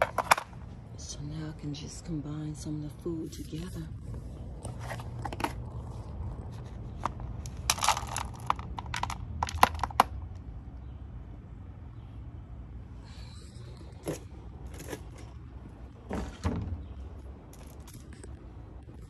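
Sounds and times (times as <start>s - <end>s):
crunching rustles of cat food: 4.0s - 10.2s.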